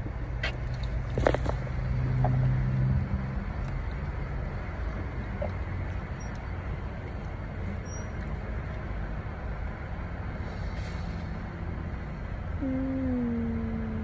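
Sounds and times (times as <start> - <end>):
car cabin low rumble: 11.9 - 14.0.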